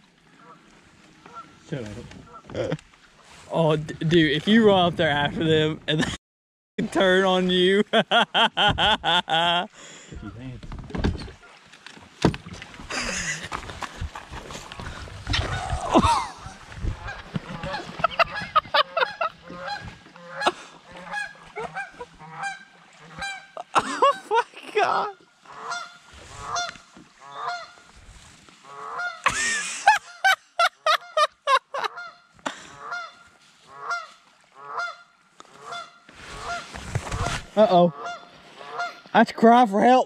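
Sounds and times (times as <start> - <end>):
geese honking: 15.4 - 24.4, 25.4 - 27.8, 28.6 - 29.3, 29.9 - 36.7, 37.7 - 39.1.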